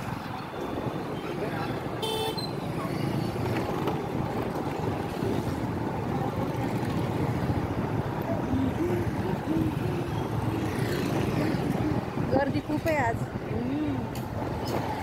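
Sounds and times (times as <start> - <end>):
motorbike engine and road noise: 0.0 - 15.0
wind buffeting microphone: 0.0 - 15.0.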